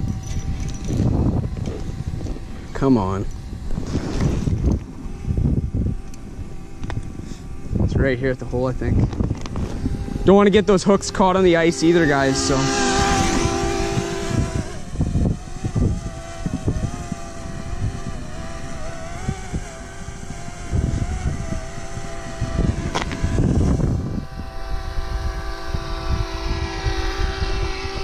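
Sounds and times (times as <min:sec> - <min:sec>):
drone propellers whining: 0:00.0 - 0:28.0
wind rumble on microphone: 0:00.0 - 0:28.0.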